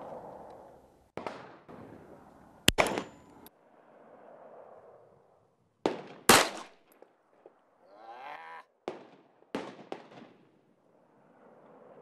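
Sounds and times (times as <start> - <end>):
pistol shots: 2.7 - 3.2, 5.9 - 6.8.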